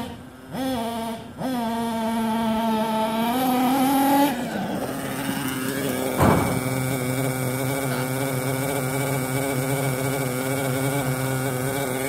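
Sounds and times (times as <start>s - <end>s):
small nitro engine revving: 0.0s - 12.0s
short sharp knock: 6.2s - 7.0s.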